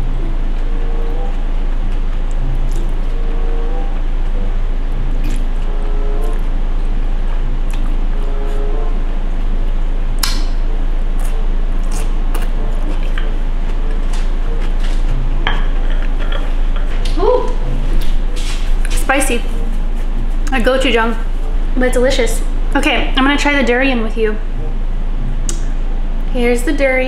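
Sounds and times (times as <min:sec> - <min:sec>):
person chewing noodles: 0:00.0 - 0:08.6, 0:11.0 - 0:18.9
low mains hum: 0:00.0 - 0:27.0.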